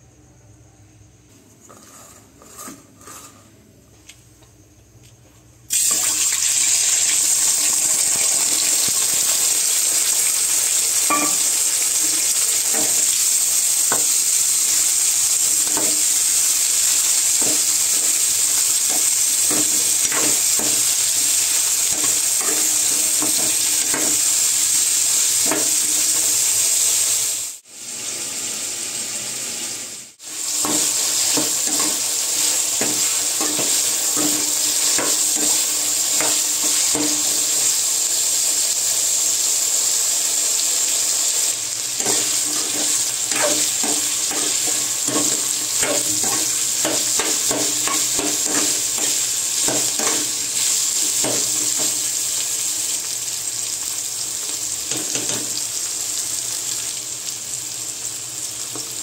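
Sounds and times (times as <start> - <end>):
spatula scraping pan: 1.6 - 3.6, 11.0 - 13.1, 15.6 - 26.4, 30.2 - 37.5, 41.9 - 52.2
food sizzling in hot oil: 5.7 - 59.0.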